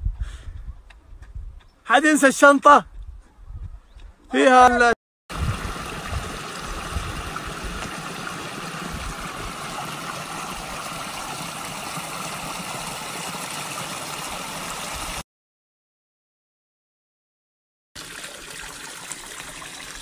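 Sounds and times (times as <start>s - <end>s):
brook trickling over stones: 5.3s - 15.2s, 18.0s - 20.0s.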